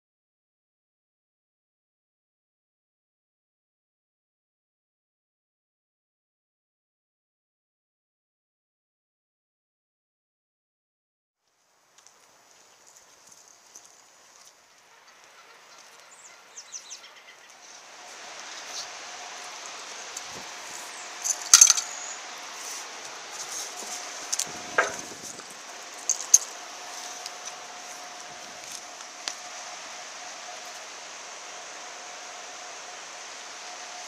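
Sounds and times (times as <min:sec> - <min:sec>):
faint steady hum: 0:11.4 - 0:34.0
rushing river water: 0:14.0 - 0:34.0
sharp clinks and knocks: 0:21.2 - 0:22.0, 0:24.4 - 0:25.2, 0:26.0 - 0:26.5.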